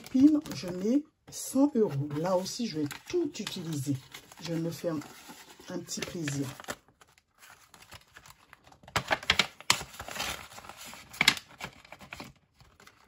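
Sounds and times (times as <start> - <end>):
paper rustling: 0.0 - 13.0.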